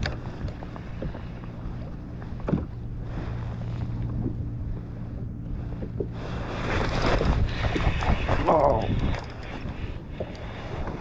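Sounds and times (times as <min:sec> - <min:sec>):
water lapping at hull: 0:00.0 - 0:11.0
wind buffeting microphone: 0:00.0 - 0:11.0
light knocks on hull: 0:02.2 - 0:02.8.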